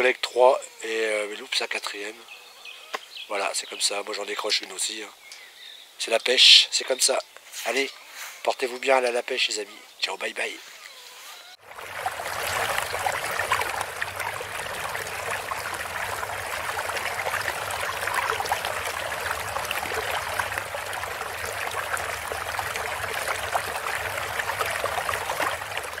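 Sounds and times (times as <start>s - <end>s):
rushing splashing water: 11.6s - 26.0s.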